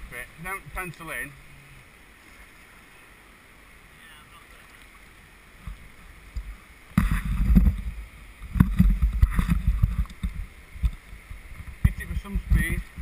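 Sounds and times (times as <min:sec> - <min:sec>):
water splashing around kayak: 0:00.0 - 0:13.0
low thumps on microphone: 0:05.6 - 0:13.0.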